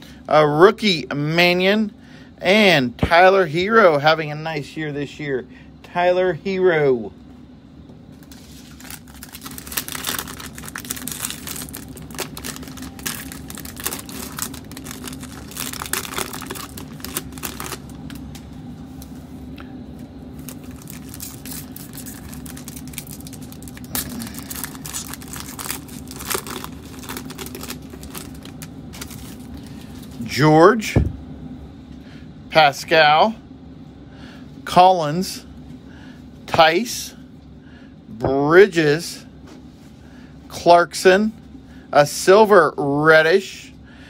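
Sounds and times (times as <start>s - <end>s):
foil wrapper crinkling and tearing: 8.2s - 18.4s, 20.4s - 30.2s.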